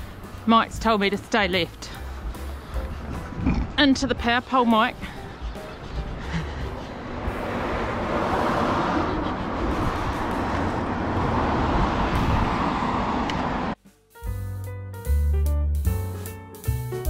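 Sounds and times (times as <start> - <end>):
road noise: 0.0 - 13.8
rushing wind: 1.9 - 13.8.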